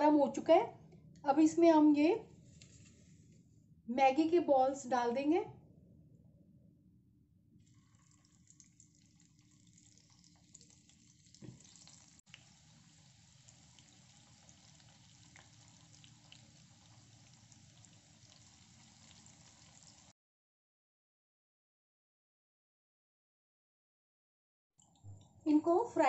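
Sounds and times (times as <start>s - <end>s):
food sizzling in hot oil: 8.0s - 20.1s.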